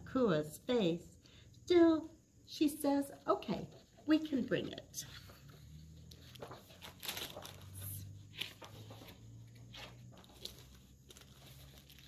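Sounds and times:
book pages turning: 4.7s - 12.0s.

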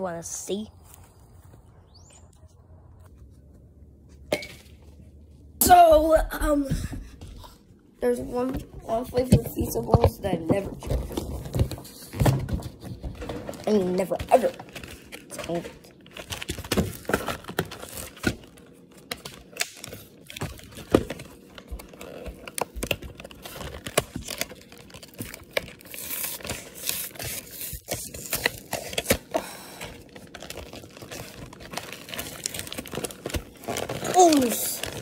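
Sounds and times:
cardboard and wrapper crinkling: 8.0s - 35.0s.

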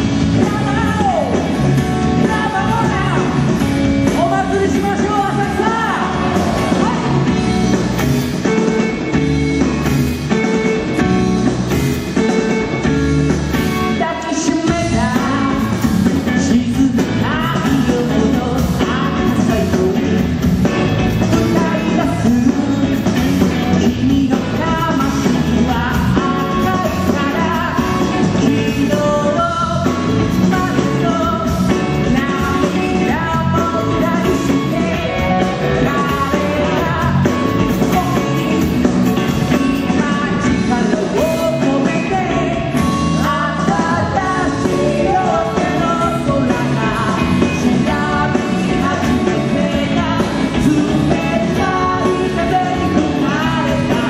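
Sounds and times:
man singing: 0.0s - 7.4s, 13.9s - 54.0s
drums: 0.0s - 54.0s
electric bass: 0.0s - 54.0s
electric guitar: 0.0s - 54.0s.

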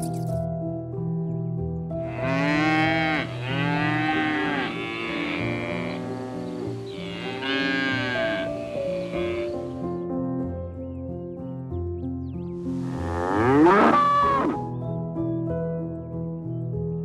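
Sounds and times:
soft background music: 0.0s - 17.0s
animals lowing: 2.0s - 10.0s, 12.7s - 14.7s.

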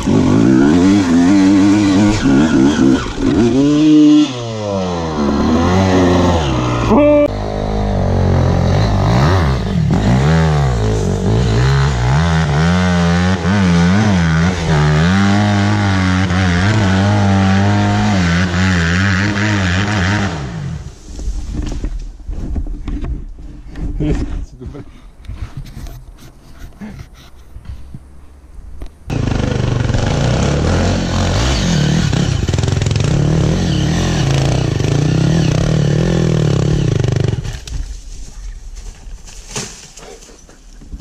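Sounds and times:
motorcycle engine revving: 0.0s - 20.9s, 29.1s - 37.7s.

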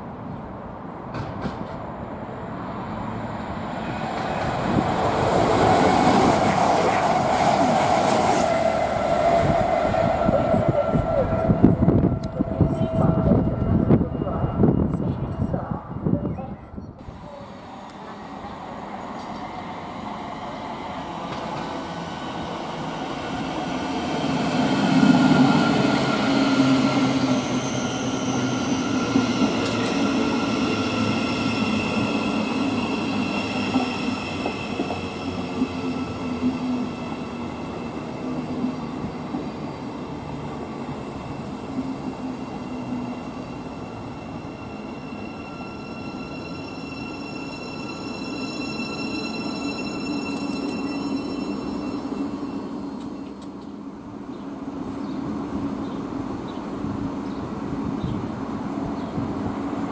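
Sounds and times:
train wheels rumbling on rail: 1.0s - 2.2s, 17.0s - 46.7s
high whining tones: 4.3s - 16.2s, 41.0s - 53.5s.

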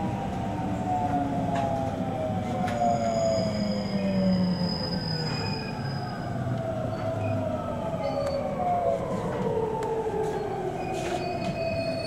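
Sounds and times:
train running gear rumble: 6.5s - 12.0s.

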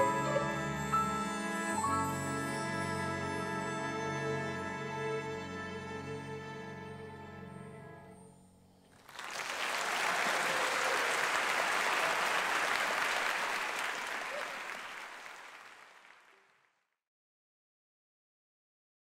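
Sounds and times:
audience applauding: 8.9s - 16.6s.

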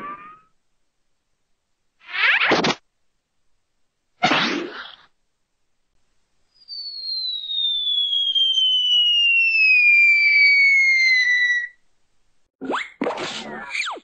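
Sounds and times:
cartoon falling whistle: 0.0s - 0.5s, 6.6s - 11.8s.

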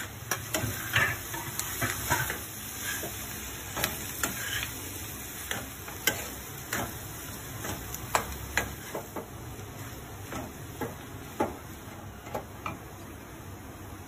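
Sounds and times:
metal spatula scraping a pan: 0.5s - 4.8s.

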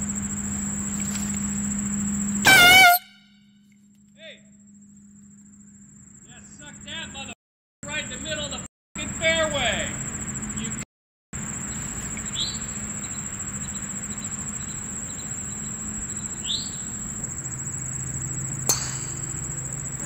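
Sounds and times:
insects droning: 0.0s - 10.8s, 11.4s - 20.0s
soft outdoor hiss: 11.4s - 20.0s
bird chirps: 11.7s - 17.0s.

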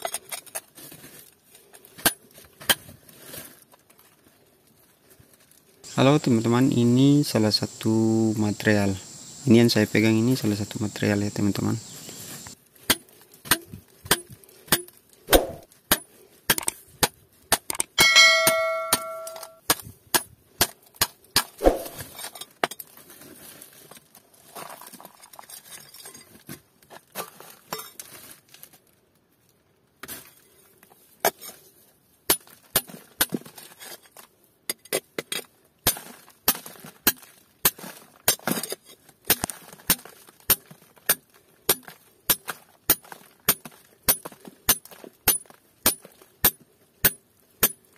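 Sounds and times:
steel bar striking rock: 12.9s - 22.1s, 39.3s - 47.8s
steel bar ringing: 18.0s - 19.6s.

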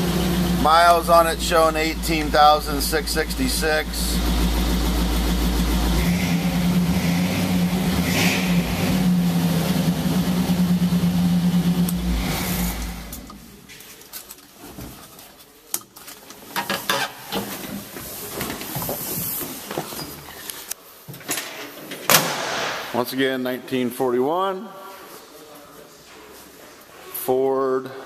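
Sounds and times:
truck engine idling: 0.0s - 13.6s.

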